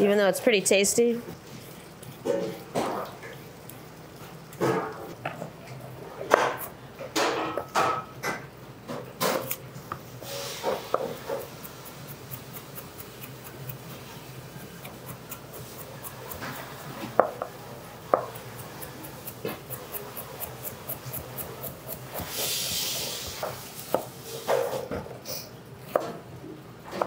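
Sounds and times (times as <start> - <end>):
knife tapping on cutting board: 17.1 - 17.5
brief hiss: 22.3 - 23.4.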